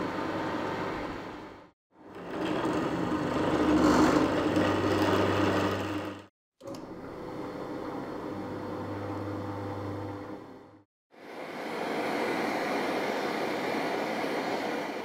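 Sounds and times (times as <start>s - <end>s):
drill press cutting metal: 2.0s - 6.9s.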